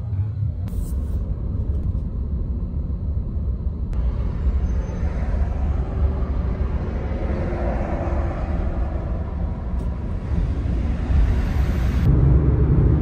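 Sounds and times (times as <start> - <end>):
vehicle rumble from inside cabin: 0.0 - 13.0.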